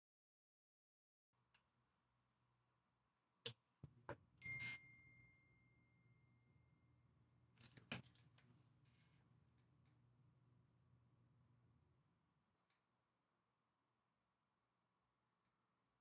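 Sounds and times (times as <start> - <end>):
phone notification buzz and ding: 4.4 - 5.4.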